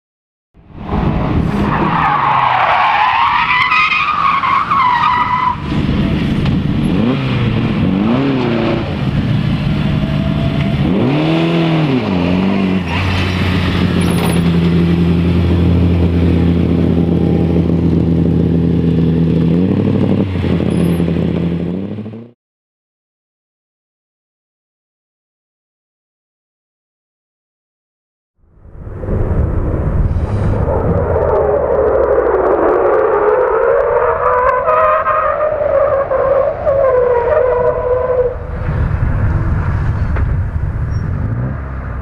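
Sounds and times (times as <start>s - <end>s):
car engine revving: 4.3s - 22.4s.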